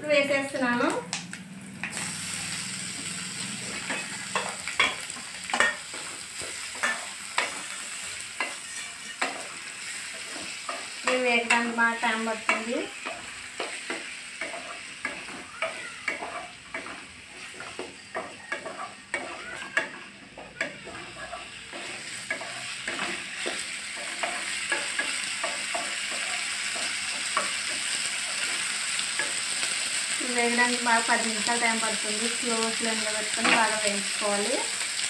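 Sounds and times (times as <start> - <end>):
vegetables sizzling in oil: 0.0 - 35.0
wooden spatula scraping a pan: 8.4 - 27.9.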